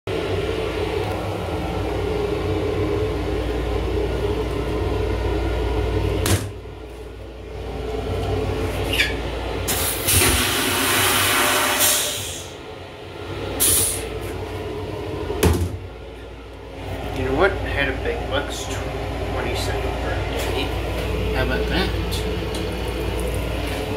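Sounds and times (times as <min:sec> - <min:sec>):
railcar hum: 0:00.1 - 0:23.9
toilet flushing: 0:09.0 - 0:12.7, 0:13.5 - 0:14.2.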